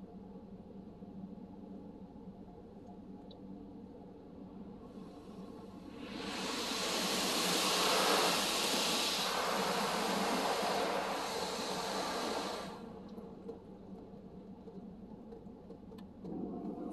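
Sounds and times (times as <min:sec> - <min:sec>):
water jets spraying on car: 0:05.9 - 0:13.3.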